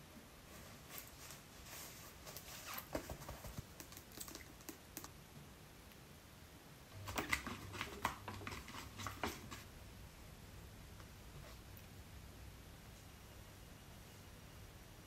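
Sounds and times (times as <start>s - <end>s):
plastic bottle and brush tapping bowl: 7.0s - 9.7s.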